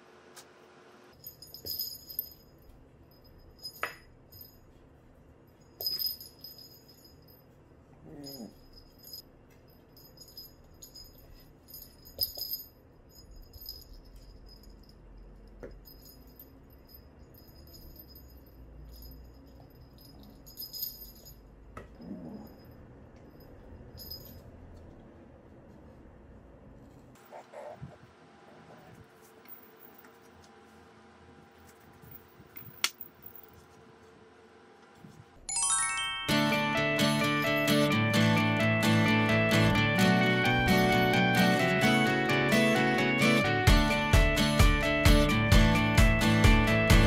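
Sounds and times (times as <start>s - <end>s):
small bell jingling: 1.2s - 4.8s, 5.5s - 24.5s.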